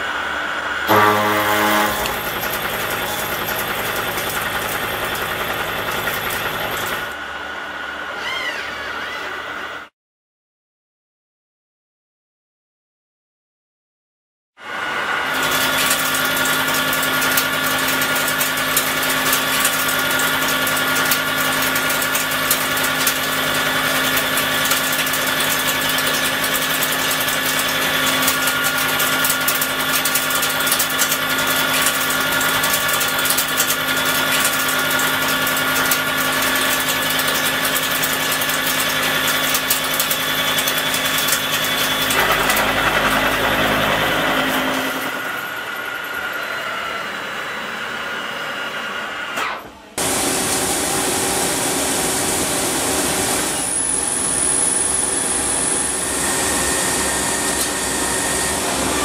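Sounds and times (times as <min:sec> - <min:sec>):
milling machine hum and whine: 0:00.0 - 0:09.9, 0:14.6 - 0:59.0
cutter crackling on steel: 0:00.9 - 0:07.1.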